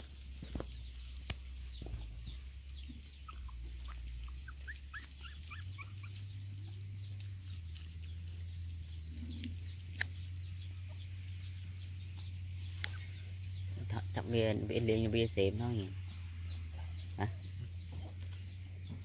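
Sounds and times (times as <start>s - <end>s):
puppies squeaking: 1.7s - 9.8s.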